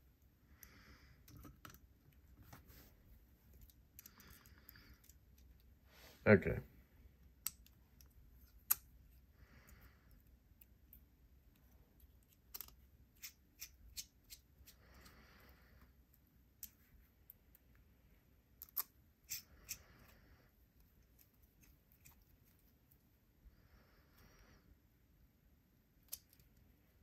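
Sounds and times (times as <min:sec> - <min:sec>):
screwdriver clicking on small screws: 0:12.4 - 0:14.8.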